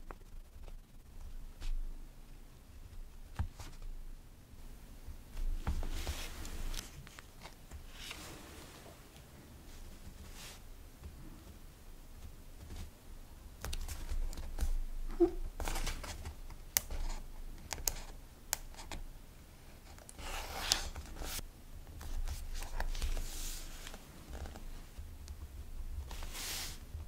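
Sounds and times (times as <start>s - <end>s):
paper rustling: 5.6s - 9.0s.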